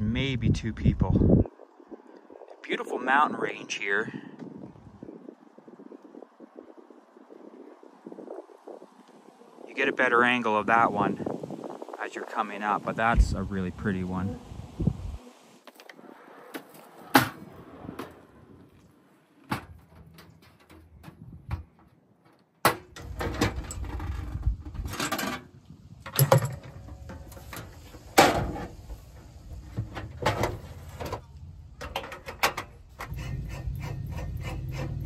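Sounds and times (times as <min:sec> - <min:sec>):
steady low noise: 0:09.4 - 0:15.2
camp stove knocks and clunks: 0:19.5 - 0:28.9, 0:29.6 - 0:33.2.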